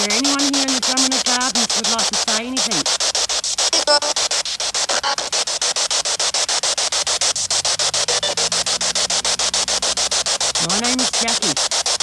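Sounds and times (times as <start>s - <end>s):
chopped radio static hiss: 0.0s - 12.0s
pitched radio fragment: 0.0s - 12.0s.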